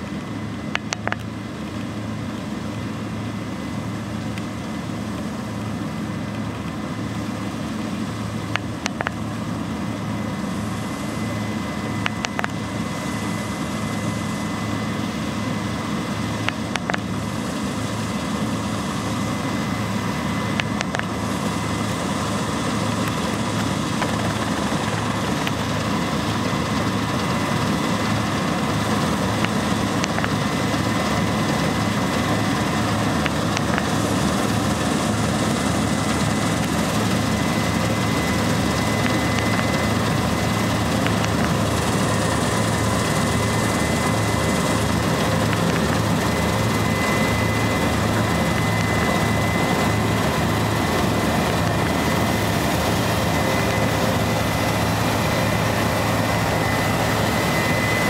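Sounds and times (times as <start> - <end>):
combine harvester engine drone: 0.0 - 58.0
high whine: 18.4 - 58.0.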